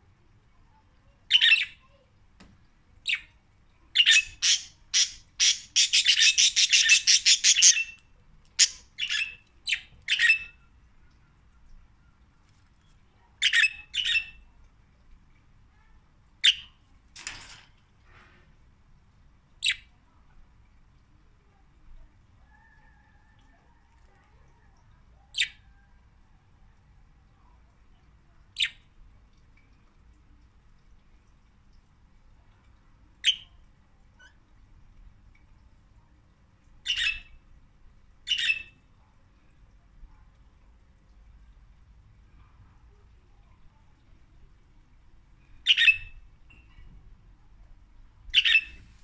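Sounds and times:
budgerigar chirping squawks: 4.0s - 7.9s.

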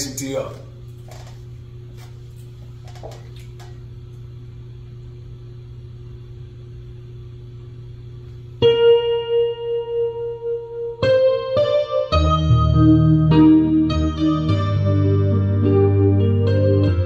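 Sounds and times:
low electrical hum: 0.0s - 17.0s
electronic keyboard note: 8.6s - 17.0s.

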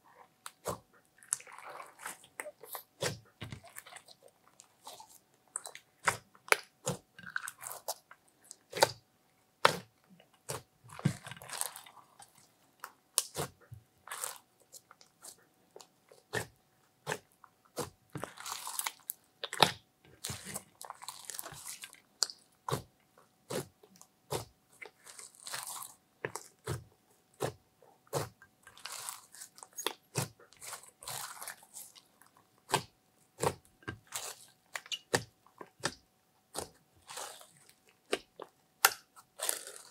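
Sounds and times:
slime crackling as stretched: 17.7s - 22.4s, 24.8s - 26.7s, 28.1s - 35.2s, 36.5s - 39.9s.

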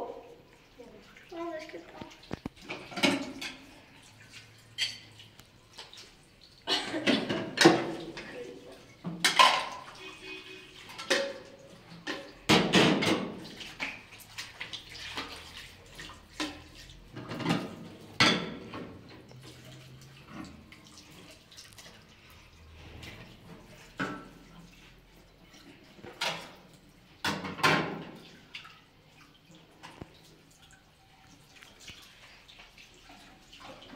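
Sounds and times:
water trickling from tap: 0.0s - 33.9s
dishes clattering in metal sink: 2.4s - 4.0s, 4.6s - 5.2s, 6.7s - 21.1s, 22.9s - 24.8s, 25.5s - 28.7s.

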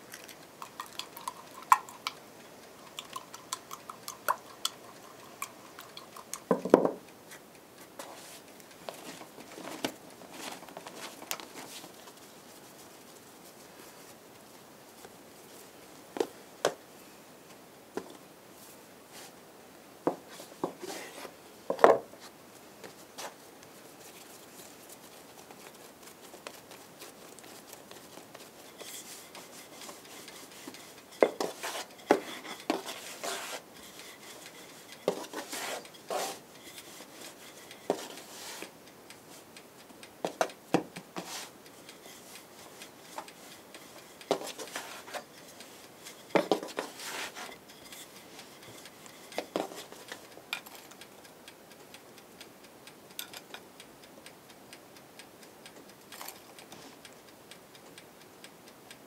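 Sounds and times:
rolling pin rubbing on dough: 20.3s - 21.3s, 24.2s - 38.7s, 41.2s - 50.1s.

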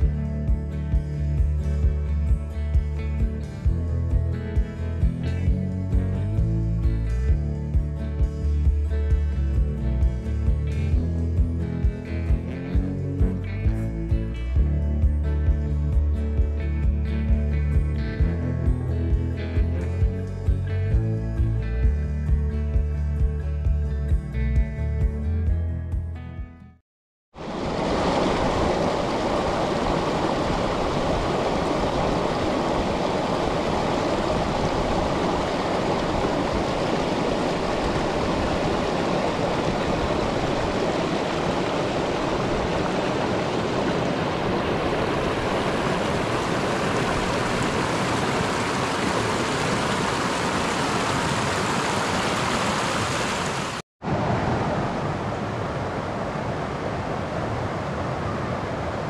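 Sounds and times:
river water rushing over rocks: 27.4s - 59.0s.

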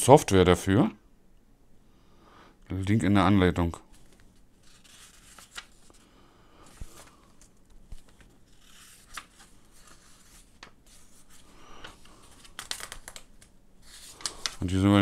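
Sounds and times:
paper pages rustling: 3.8s - 15.0s.

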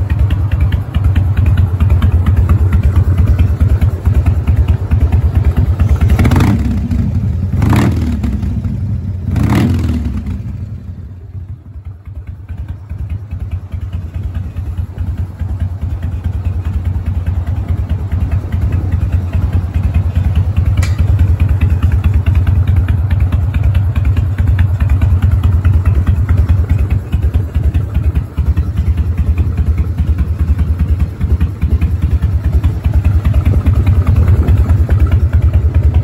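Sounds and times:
motorcycle engine idling: 0.0s - 36.0s
sharp click: 20.8s - 21.2s.

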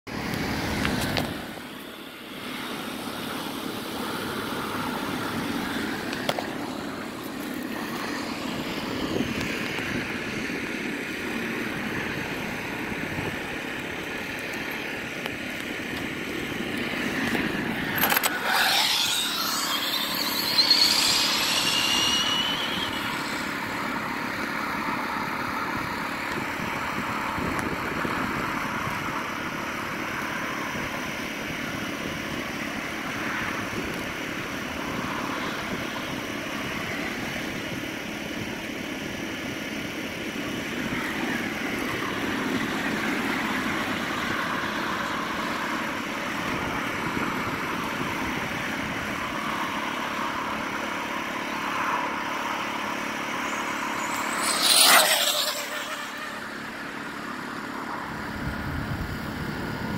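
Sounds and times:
outdoor background noise: 0.1s - 59.9s
electric motor whine sweeping down: 0.2s - 30.4s, 51.4s - 59.9s.

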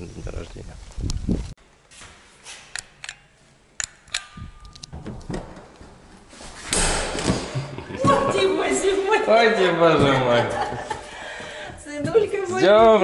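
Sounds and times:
sharp clicks and knocks: 2.7s - 5.9s.

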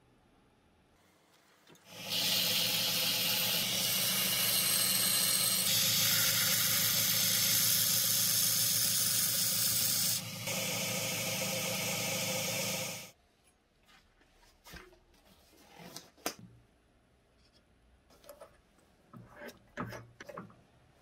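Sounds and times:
belt grinder motor hum: 1.9s - 13.1s.

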